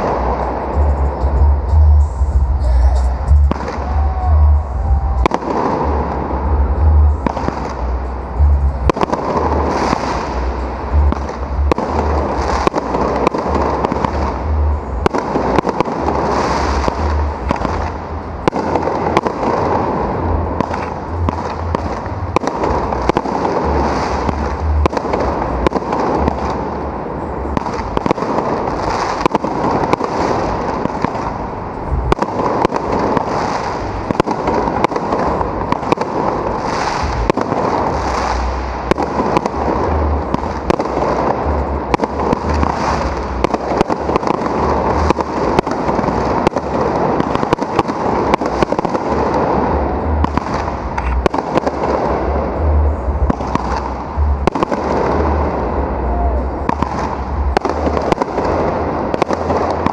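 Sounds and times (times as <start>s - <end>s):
fireworks bangs: 0.0s - 59.9s
fireworks hiss: 9.1s - 49.4s.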